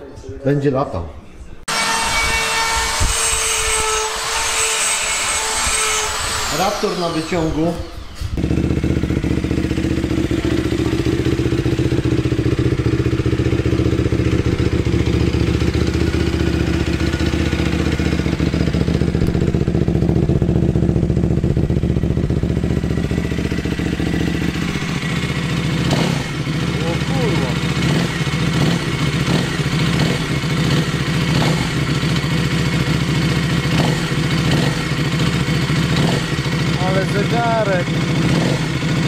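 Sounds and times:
quad engine idling: 8.4s - 39.0s.

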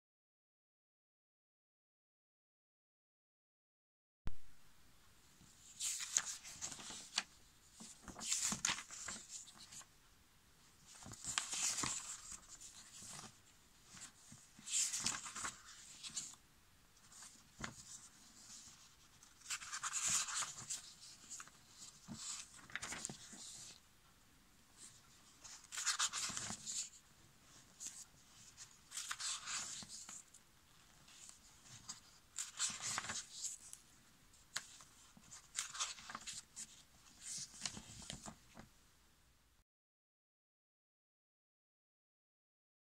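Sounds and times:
comic book pages turning: 5.6s - 9.9s, 10.8s - 16.4s, 17.0s - 23.8s, 24.8s - 33.8s, 34.5s - 38.6s.

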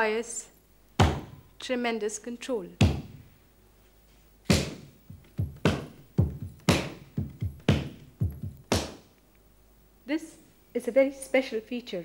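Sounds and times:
hand drum rhythm: 4.5s - 9.1s.

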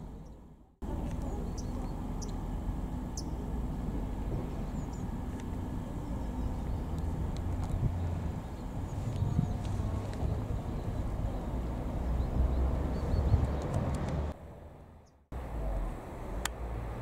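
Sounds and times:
birds chirping: 0.0s - 3.6s, 4.4s - 14.1s
steady low rumble: 0.0s - 17.0s.

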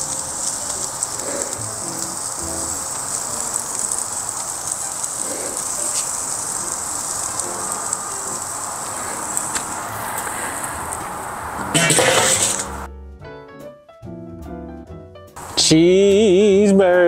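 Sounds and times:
meat sizzling on grill: 0.0s - 12.9s, 15.4s - 16.6s
faint clicks: 3.1s - 11.0s.

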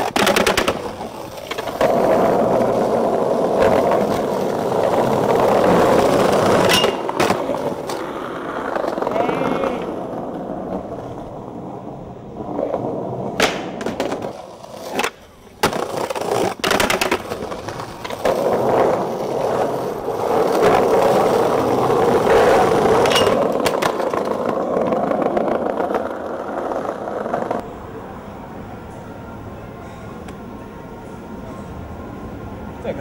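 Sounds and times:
skateboard clacking on ground: 0.0s - 11.4s, 12.4s - 27.6s
skateboard wheels rolling on stone: 0.0s - 27.7s.

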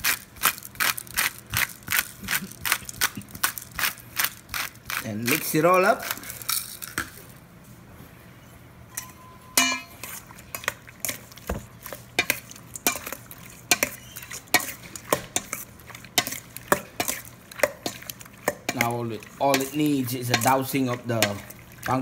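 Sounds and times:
wet squishing of food by hand: 9.9s - 22.0s.

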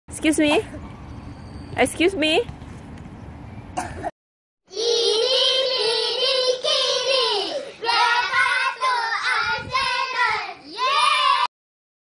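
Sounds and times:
children singing: 4.7s - 11.5s.

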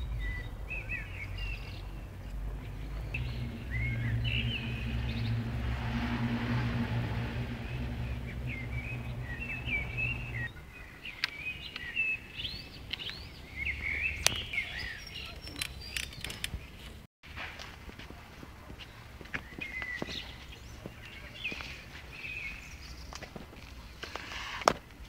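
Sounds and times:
small birds chirping: 0.0s - 5.8s, 6.7s - 17.0s, 18.7s - 24.3s
low steady hum: 0.0s - 10.5s.

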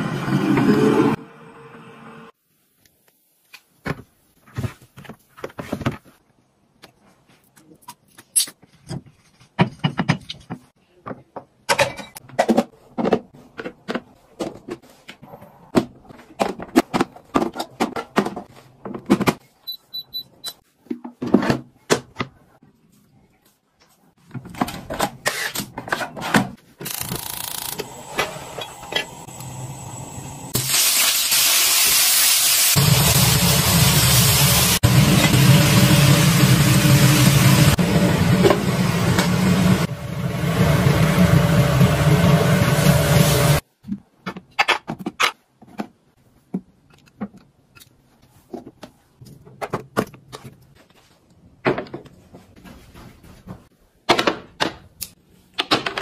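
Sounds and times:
food sizzling in a hot wok: 30.5s - 38.3s.

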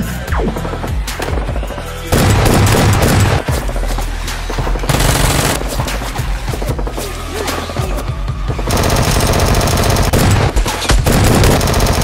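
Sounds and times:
background music: 0.0s - 12.0s
rapid automatic gunfire: 2.1s - 3.8s, 4.9s - 5.6s, 8.7s - 12.0s.

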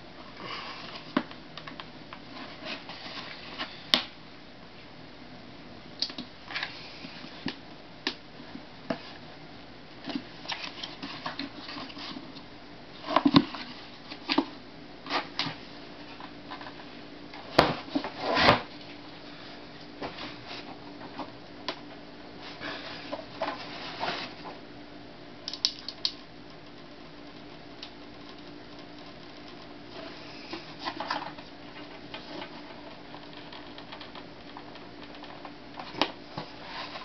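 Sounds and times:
plastic cracking: 30.5s - 36.2s.

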